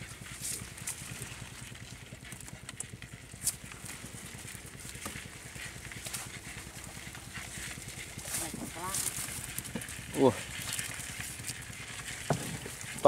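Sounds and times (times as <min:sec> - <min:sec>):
fish trap net rustling: 0:03.3 - 0:13.0.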